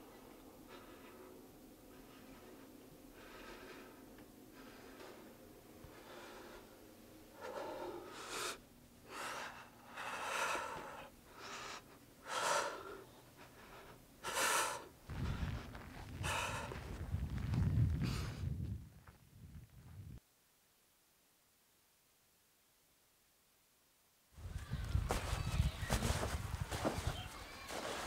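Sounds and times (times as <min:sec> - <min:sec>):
man breathing hard: 0:00.6 - 0:17.2
low rumble: 0:15.1 - 0:20.2.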